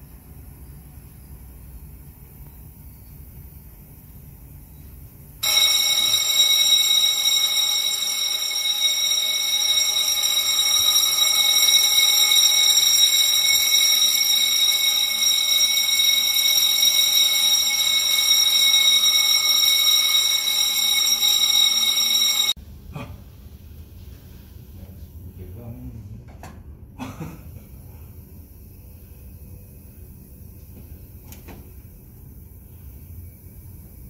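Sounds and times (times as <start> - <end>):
fire alarm high-pitched tone: 5.4 - 22.6.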